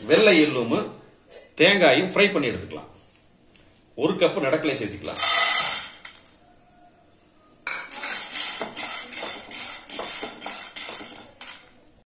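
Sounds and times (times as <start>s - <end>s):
peanuts clattering in pan: 5.2s - 6.4s, 7.7s - 11.9s.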